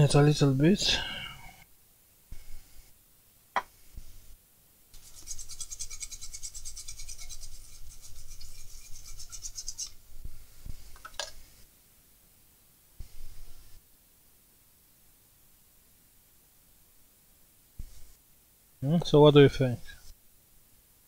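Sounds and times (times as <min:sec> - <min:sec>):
small brush scrubbing circuit board: 0:05.0 - 0:10.0.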